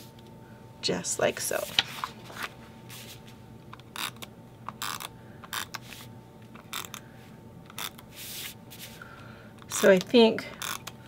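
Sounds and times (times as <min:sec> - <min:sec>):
tape runner rasping across paper: 0:04.8 - 0:07.0, 0:07.7 - 0:08.9, 0:10.6 - 0:10.9.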